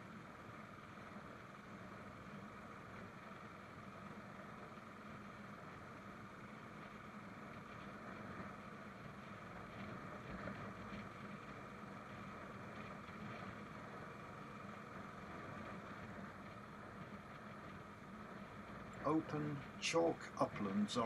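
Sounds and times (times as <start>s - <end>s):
road noise: 5.1s - 21.0s.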